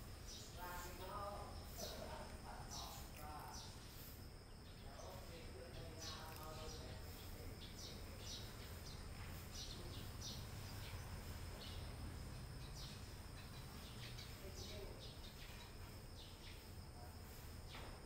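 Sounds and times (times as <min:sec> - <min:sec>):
faint background hum: 0:00.0 - 0:18.0
cat chewing crunches: 0:03.0 - 0:03.5.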